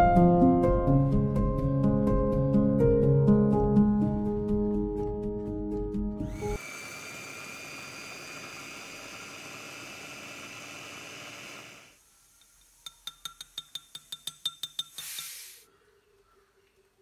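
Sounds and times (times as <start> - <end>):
electric food chopper whining: 6.2 - 12.0.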